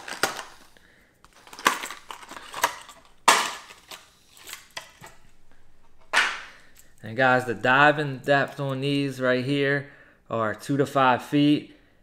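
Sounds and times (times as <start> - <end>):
plastic packaging cracking open: 0.0 - 5.2.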